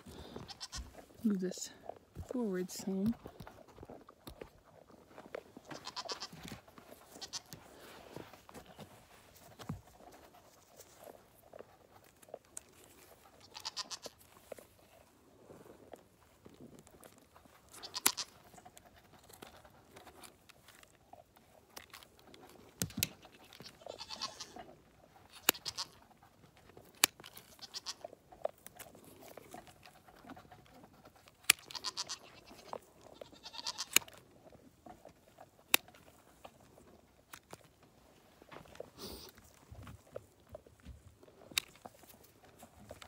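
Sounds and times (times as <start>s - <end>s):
hoof shears snipping: 0.0s - 14.9s, 16.4s - 43.0s
goats bleating: 0.1s - 1.0s, 5.6s - 6.4s, 7.2s - 7.6s, 13.4s - 14.2s, 17.7s - 18.3s, 23.6s - 24.7s, 25.4s - 26.0s, 27.5s - 28.1s, 31.6s - 34.1s.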